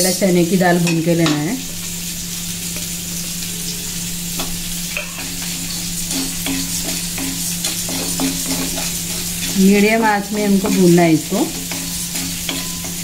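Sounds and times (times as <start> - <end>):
steady hiss: 0.0 - 13.0
wooden spatula scraping metal pan: 5.0 - 13.0.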